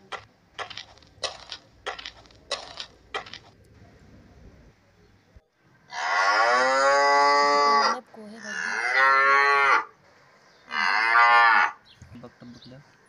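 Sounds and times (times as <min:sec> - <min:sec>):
cows mooing: 0:05.9 - 0:09.9, 0:10.7 - 0:11.8.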